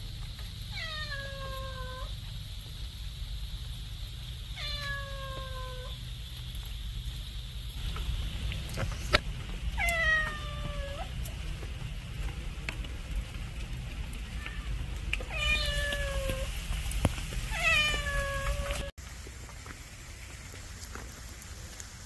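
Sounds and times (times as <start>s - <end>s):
cat meowing: 0.7s - 2.1s, 4.6s - 6.0s, 9.8s - 11.2s, 14.3s - 16.5s, 17.5s - 18.9s.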